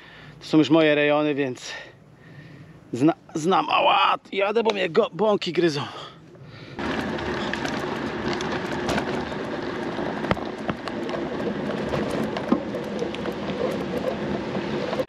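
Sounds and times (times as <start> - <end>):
bicycle tyres rolling: 5.8 - 15.0
bike clicks and rattles: 6.7 - 15.0.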